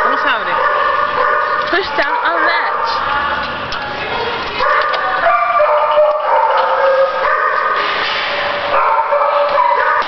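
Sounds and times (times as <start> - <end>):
dogs barking: 0.0 - 10.0
dogs crying high-pitched: 4.0 - 7.8, 8.7 - 10.0.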